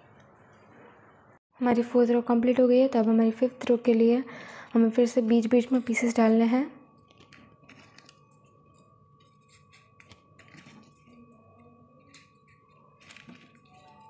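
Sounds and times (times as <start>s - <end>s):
paper rustling: 7.2s - 11.3s, 12.0s - 14.0s.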